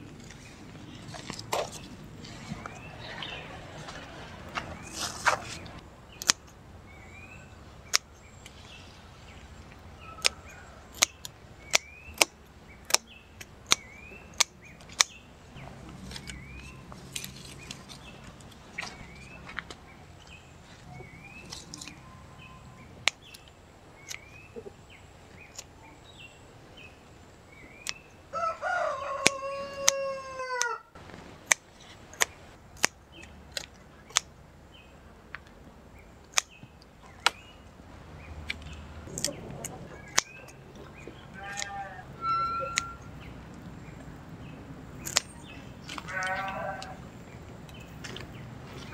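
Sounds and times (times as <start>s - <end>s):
small birds chirping: 0.0s - 30.7s, 31.4s - 48.9s
sharp snaps: 5.3s - 6.6s, 7.8s - 8.6s, 9.6s - 15.2s, 27.7s - 28.0s, 29.2s - 30.0s, 31.4s - 34.3s, 36.2s - 36.6s, 38.4s - 40.6s, 45.0s - 46.2s
rooster crowing: 28.3s - 31.0s.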